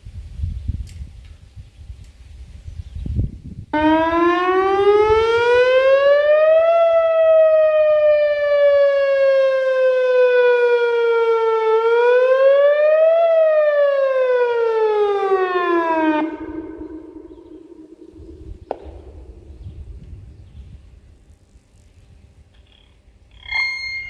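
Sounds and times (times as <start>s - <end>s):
warning siren: 3.7s - 19.5s, 23.4s - 24.0s.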